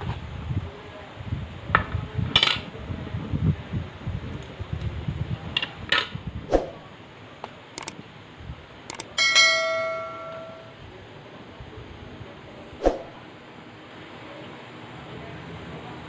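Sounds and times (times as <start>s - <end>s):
bell chime: 9.2s - 10.8s.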